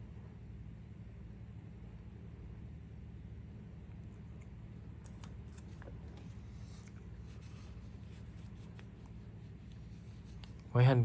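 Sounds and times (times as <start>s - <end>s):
low steady hum: 0.0s - 11.0s
soft rubbing: 4.2s - 10.8s.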